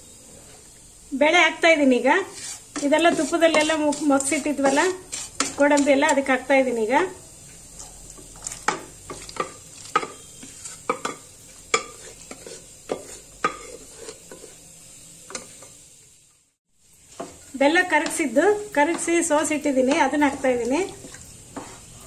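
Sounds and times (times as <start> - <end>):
wooden spatula scraping pan: 2.1 - 6.2, 8.4 - 14.6, 17.1 - 22.0.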